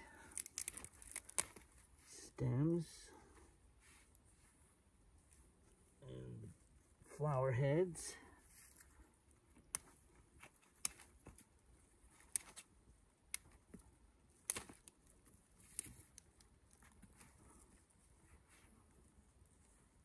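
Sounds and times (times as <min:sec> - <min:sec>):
plant stems snapping and rustling: 0:00.2 - 0:01.8, 0:09.6 - 0:11.5, 0:12.1 - 0:17.3.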